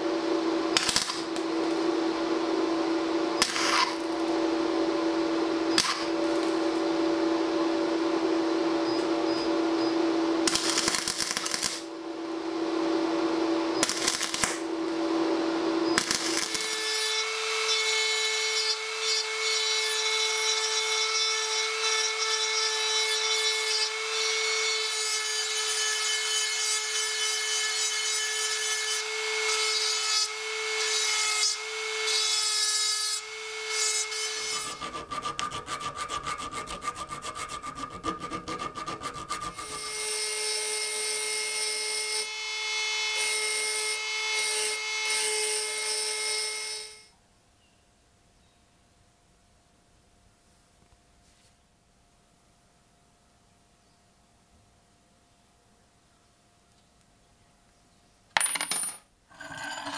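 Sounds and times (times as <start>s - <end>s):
rotary tool whining: 0.8s - 7.5s, 33.6s - 40.8s
grinding bit rasping on metal: 33.8s - 42.1s, 59.3s - 59.9s.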